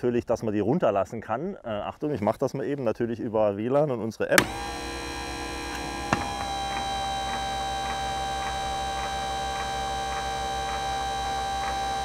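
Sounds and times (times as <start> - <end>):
electric motor humming: 4.4 - 12.0
light ticking: 4.4 - 12.0
motor switch click: 4.4 - 12.0.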